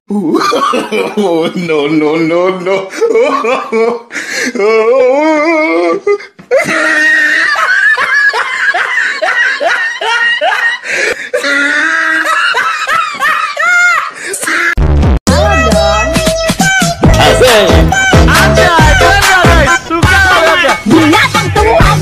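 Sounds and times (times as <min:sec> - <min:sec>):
hearty laughter: 0:02.6 - 0:04.1, 0:06.5 - 0:14.8, 0:18.6 - 0:22.0.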